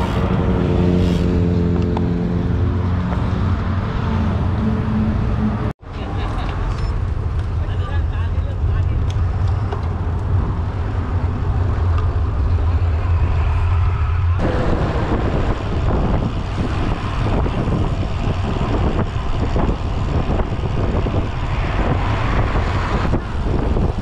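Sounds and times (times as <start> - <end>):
road noise: 0.0 - 24.0
wind buffeting microphone: 7.1 - 24.0.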